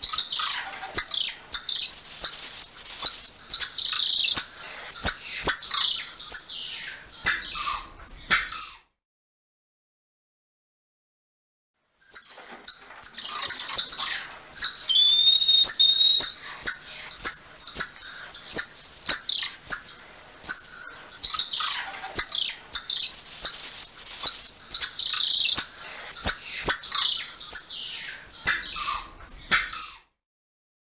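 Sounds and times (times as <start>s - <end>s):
monkey chirps and squeaks: 14.6s - 16.3s
long high whistles: 14.9s - 16.2s.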